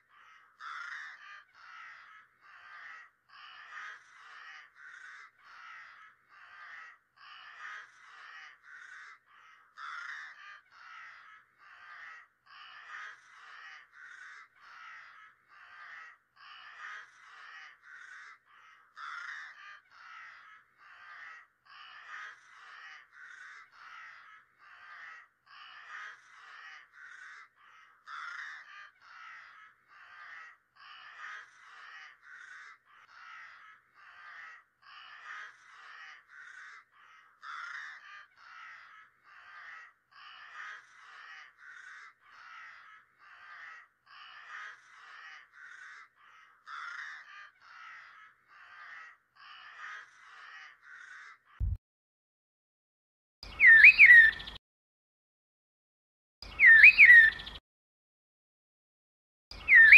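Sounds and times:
crows cawing: 0:00.0 - 0:51.8, 0:53.4 - 0:54.6, 0:56.4 - 0:57.6, 0:59.5 - 0:59.9.

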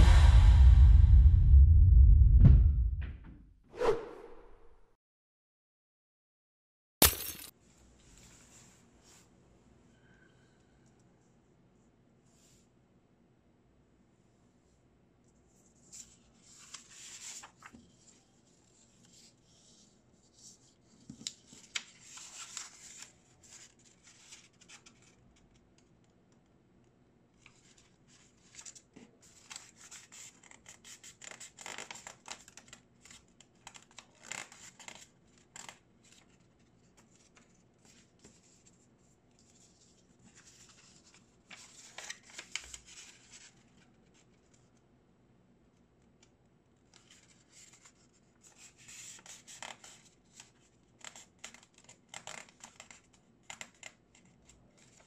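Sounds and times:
paper being folded: 0:15.8 - 0:25.6, 0:27.4 - 0:44.8, 0:46.9 - 0:55.0.

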